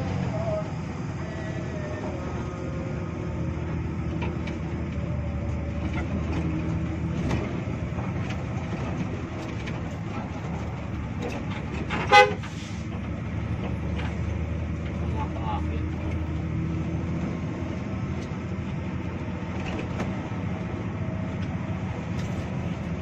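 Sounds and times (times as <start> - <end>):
bus diesel engine running: 0.0 - 23.0
road noise: 0.0 - 23.0
short loud horn toot: 12.1 - 12.5.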